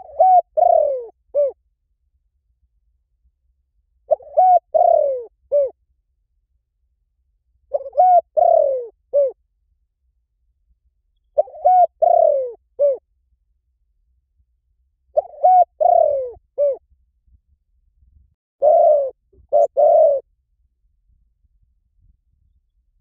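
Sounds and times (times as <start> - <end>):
dove cooing: 0.0 - 1.6, 4.1 - 5.8, 7.7 - 9.4, 11.4 - 13.0, 15.2 - 16.8, 18.6 - 20.3.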